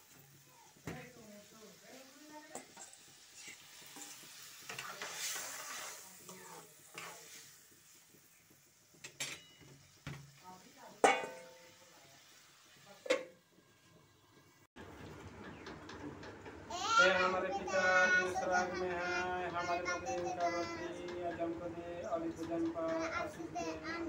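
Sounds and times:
curry sizzling in pan: 0.0 - 14.8
metal spoon scraping steel bowl: 2.6 - 6.0
spoon clinking against pan: 9.0 - 9.8, 11.0 - 11.7
metal lid clanking on pan: 9.0 - 10.2, 11.0 - 11.8, 13.0 - 13.4.

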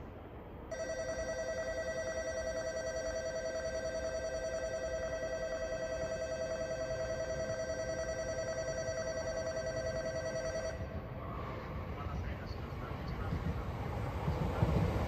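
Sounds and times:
electric warning bell ringing: 0.7 - 10.9.

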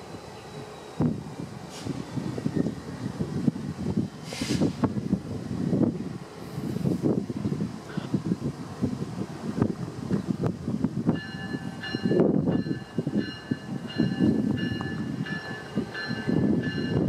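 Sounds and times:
locomotive bell ringing: 11.2 - 17.0.

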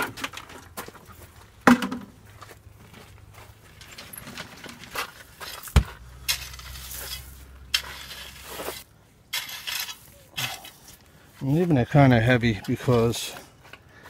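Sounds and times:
metal rake scraping gravel: 3.7 - 13.3.

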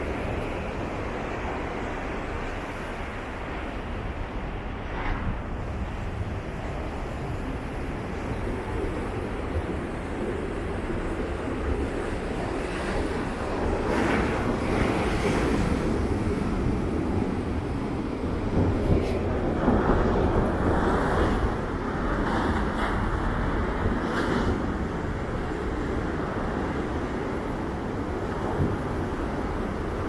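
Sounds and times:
heavy surf waves breaking: 0.0 - 30.0
wind rumbling on microphone: 0.0 - 30.0.

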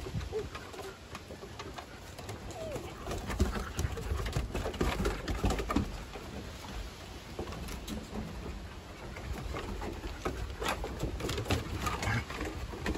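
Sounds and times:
dogs growling: 10.7 - 12.9.

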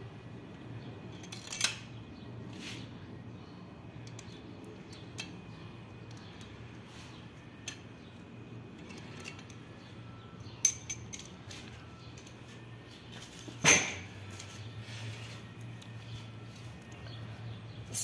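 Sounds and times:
metal engine parts clinking: 1.0 - 2.0, 4.0 - 14.6.

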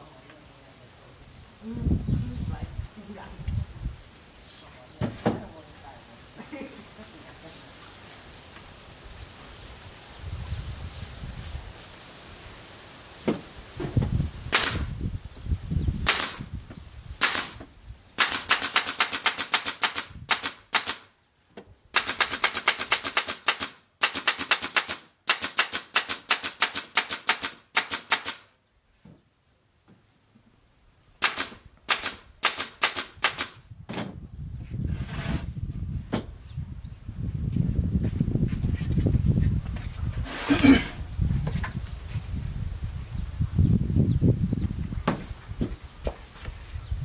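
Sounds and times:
pneumatic nail gun firing: 14.5 - 15.0, 16.0 - 16.5, 17.2 - 21.1, 21.9 - 28.5, 31.2 - 33.6
low thuds of panels handled: 33.8 - 34.3, 36.0 - 36.4, 45.0 - 46.2.

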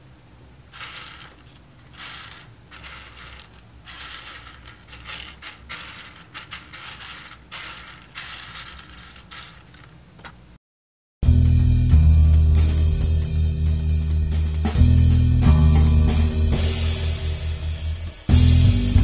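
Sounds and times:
seeds rattling on wooden table: 0.7 - 10.4.

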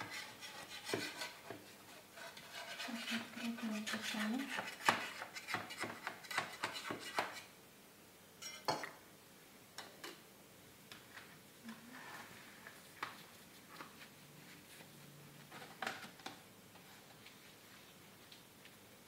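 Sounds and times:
knife scraping a cake pan: 0.0 - 7.5.

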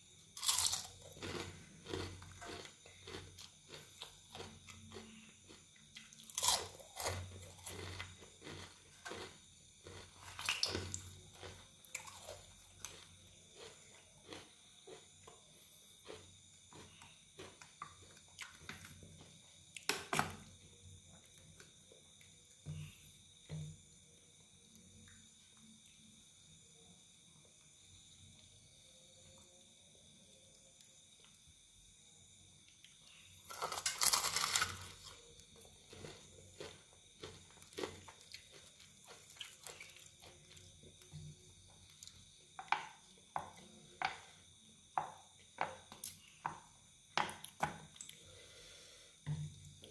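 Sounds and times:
fried chicken crunching and crackling: 0.4 - 15.1, 33.5 - 41.0
crispy chicken crackling: 33.5 - 35.0.

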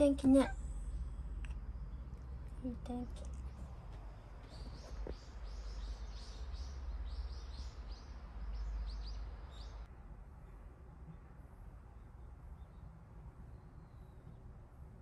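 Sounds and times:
low rumble: 0.0 - 7.4
small birds chirping: 0.0 - 9.9.

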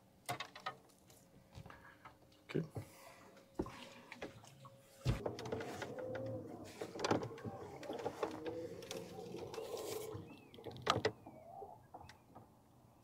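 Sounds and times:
bird chirping: 8.9 - 12.4.

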